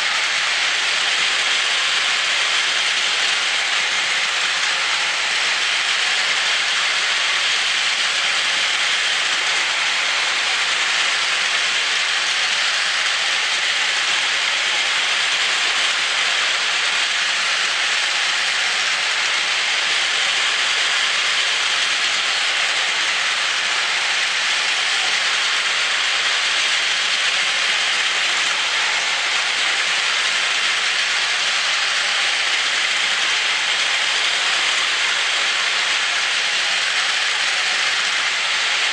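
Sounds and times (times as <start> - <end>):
toy train motors whirring: 0.0 - 38.9.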